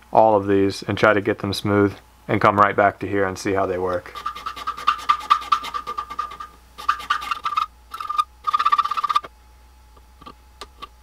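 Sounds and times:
needle file rasping on metal gear: 4.1s - 9.2s.

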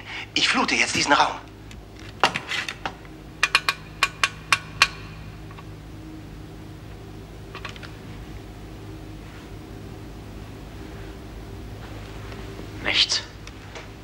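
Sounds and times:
steady low hum: 0.0s - 14.0s
switches clicking: 1.4s - 5.8s.

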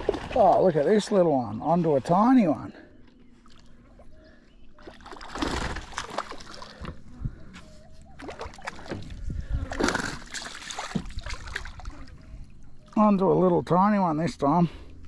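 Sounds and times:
fish splashing in water: 0.0s - 0.8s, 4.8s - 6.9s, 8.1s - 12.4s.

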